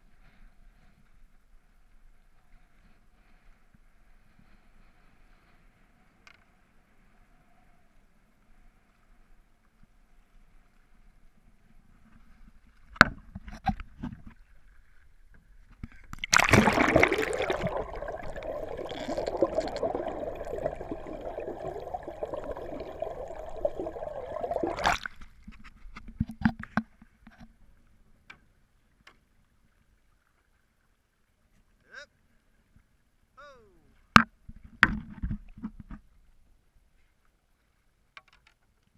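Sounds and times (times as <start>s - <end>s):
water splashing: 16.0s - 25.5s
underwater bubbling rush: 16.2s - 25.2s.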